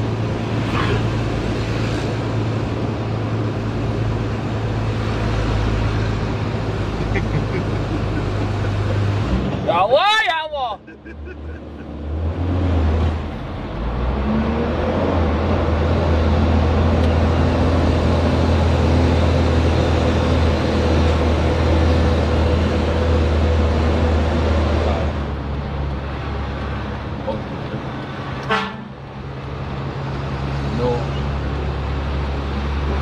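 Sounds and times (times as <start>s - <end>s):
diesel truck engine droning: 0.0s - 33.0s
vehicle horn toot: 28.5s - 28.9s.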